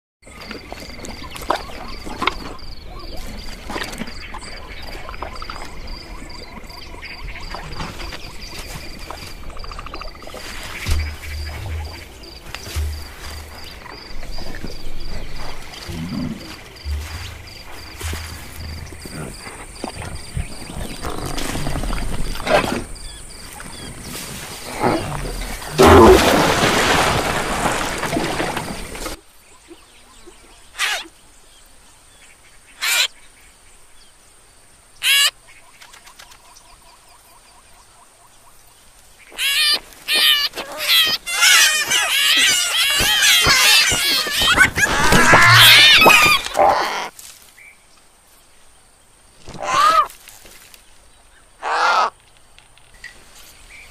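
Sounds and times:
insect-like chirp: 0.2s - 53.9s
low soft thuds: 10.7s - 20.6s
cartoon chicks squawking: 39.4s - 47.1s.

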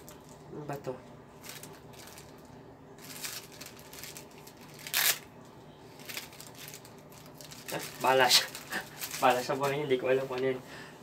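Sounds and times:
packaging rustling: 1.3s - 5.3s, 5.9s - 10.4s
packaging crackle: 1.4s - 5.3s, 5.9s - 9.9s.

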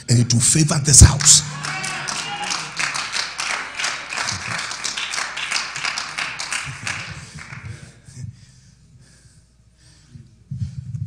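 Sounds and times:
voices: 0.9s - 7.6s
crowd applauding: 1.0s - 7.9s.

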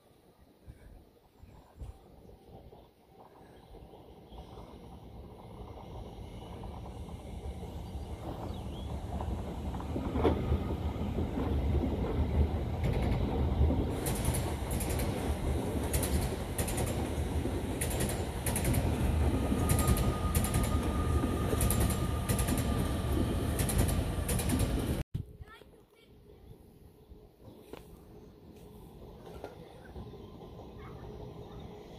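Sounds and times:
diesel locomotive engine rumble: 0.5s - 25.1s, 28.1s - 31.9s
wheels clicking over rail joints: 3.2s - 25.0s, 29.0s - 31.8s.

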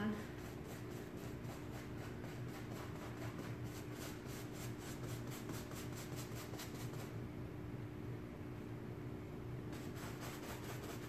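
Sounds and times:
steady low hum: 0.0s - 11.0s
paintbrush scrubbing fabric: 0.3s - 7.1s, 9.7s - 11.0s.

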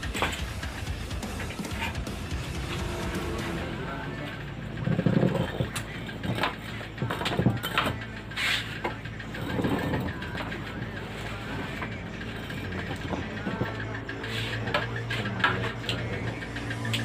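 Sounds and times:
tools and metal parts clinking: 0.0s - 0.6s, 1.4s - 2.0s, 4.7s - 17.0s
steady low hum: 0.0s - 17.0s.

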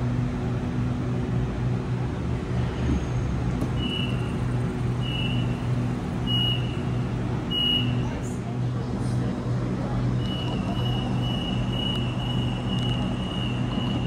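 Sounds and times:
train equipment humming: 0.0s - 14.0s
short high beeps: 7.5s - 8.0s.

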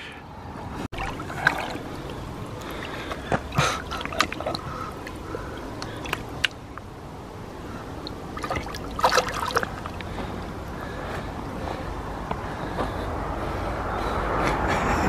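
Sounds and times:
small water splashes: 0.9s - 10.9s
water trickling and gurgling: 1.0s - 10.9s.

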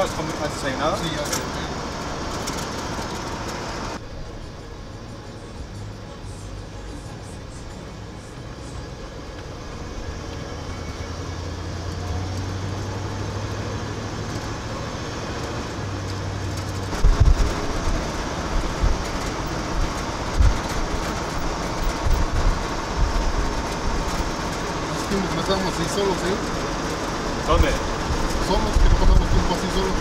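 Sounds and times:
road noise: 0.0s - 30.0s
truck engine running: 0.0s - 30.0s
wind buffeting microphone: 16.6s - 24.9s.

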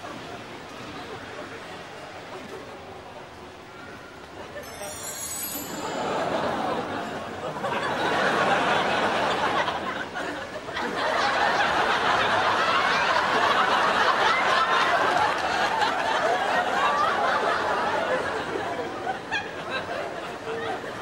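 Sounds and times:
audience laughing: 4.5s - 21.0s.

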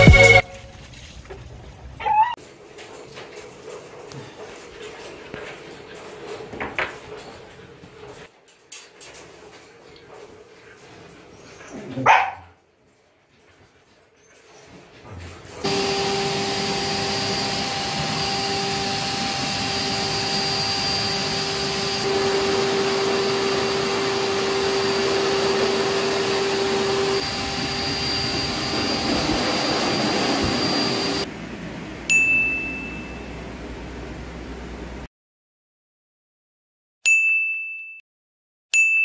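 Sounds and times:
dog blower running: 15.6s - 31.4s
loud ding: 32.1s - 33.3s.

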